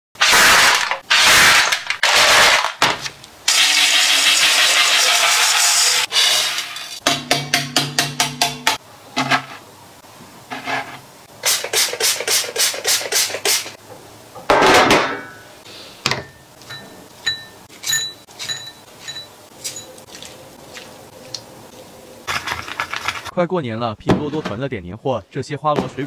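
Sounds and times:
utensils clinking on ceramic bowl: 16.2s - 20.3s.

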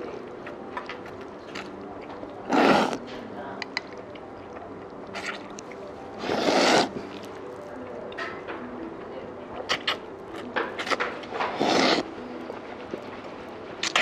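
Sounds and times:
person slurping noodles: 2.5s - 3.0s, 5.1s - 5.4s, 6.2s - 7.3s, 11.5s - 12.1s.

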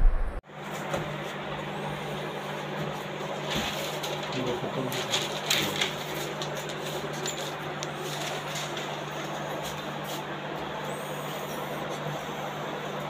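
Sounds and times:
steady low hum: 0.0s - 5.1s.

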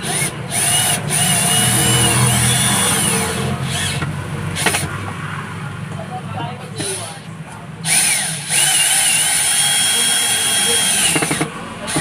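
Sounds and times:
cordless drill whining: 0.0s - 4.9s, 7.8s - 12.0s.

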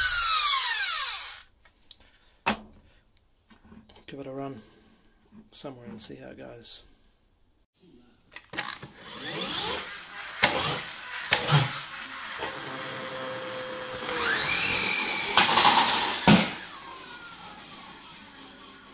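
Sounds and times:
toy flywheel motor whirring: 8.6s - 13.3s.

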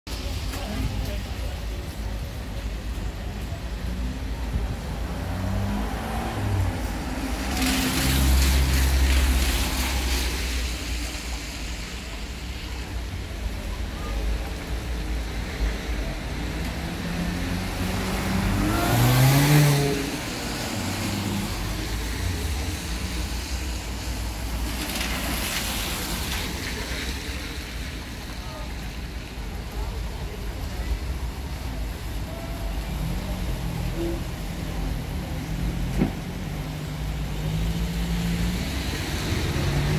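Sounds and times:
tyres hissing on wet road: 0.1s - 39.9s
car engine pulling away: 4.0s - 10.6s, 16.3s - 22.8s.

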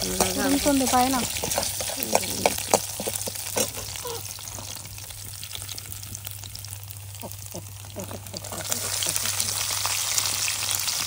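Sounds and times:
spices sizzling in hot oil: 0.0s - 11.0s.

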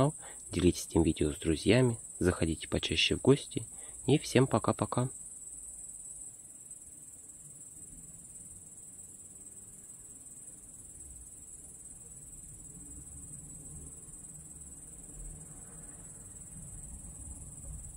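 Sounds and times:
crickets trilling: 0.0s - 17.9s
faint low rumble: 12.8s - 17.9s.

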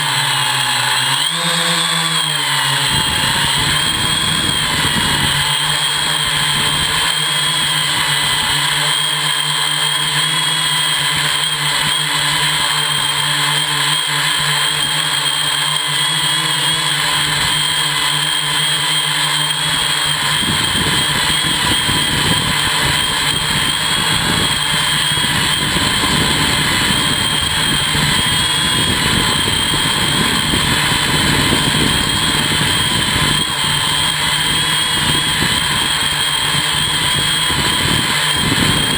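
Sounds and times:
drone motors whining: 0.0s - 38.9s
low hum: 19.6s - 38.9s.

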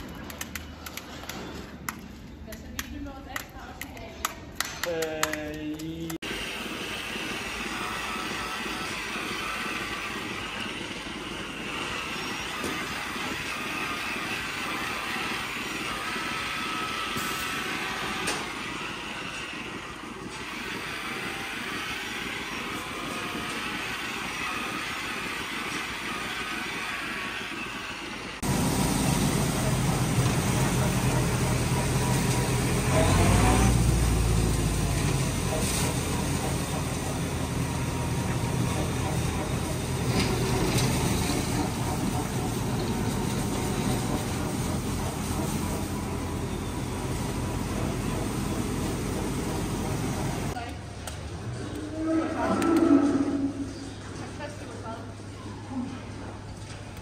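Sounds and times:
straw blower fan running: 5.2s - 50.7s
milking machinery hum and hiss: 5.8s - 57.0s
tractor engine hum: 28.4s - 50.6s.

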